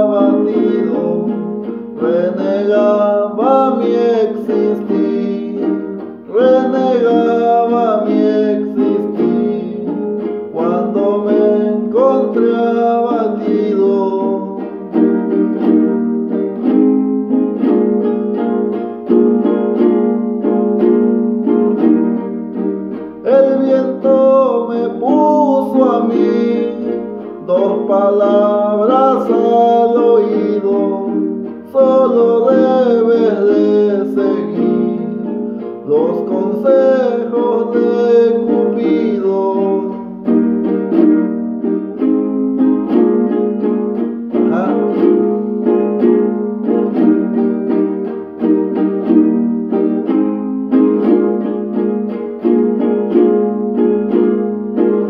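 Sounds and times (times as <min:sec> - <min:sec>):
man singing: 0:00.0 - 0:15.7, 0:22.9 - 0:41.0, 0:44.3 - 0:47.1
small guitar strumming: 0:00.0 - 0:55.0.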